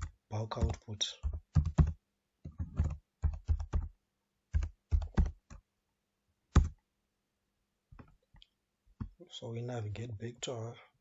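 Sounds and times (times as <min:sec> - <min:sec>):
keyboard typing: 0:00.0 - 0:03.9, 0:04.5 - 0:05.6, 0:06.5 - 0:06.8.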